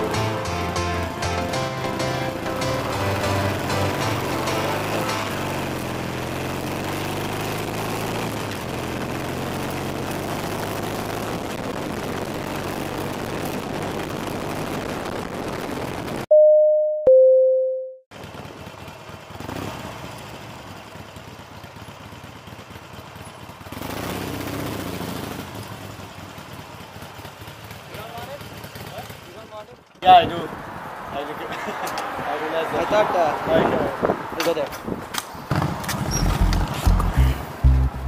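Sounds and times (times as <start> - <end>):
motorcycle engine: 0.0 - 16.2, 18.1 - 30.0, 35.4 - 38.0
ding-dong chime: 16.3 - 18.0.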